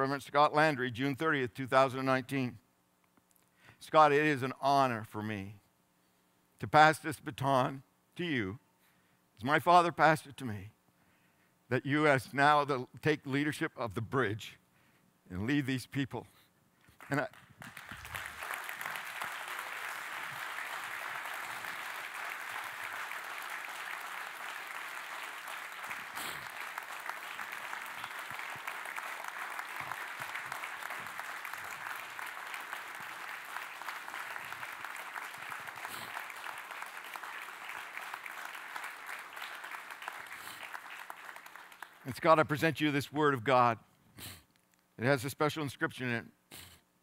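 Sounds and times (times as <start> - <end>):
congregation clapping: 16.9 - 42.7.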